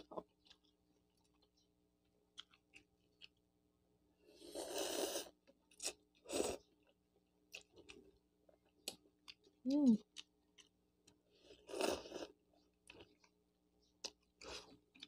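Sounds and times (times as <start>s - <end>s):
mouth clicks and chewing: 0.0s - 1.7s, 2.3s - 3.4s, 5.4s - 12.0s, 12.6s - 15.0s
person slurping noodles: 4.4s - 5.3s.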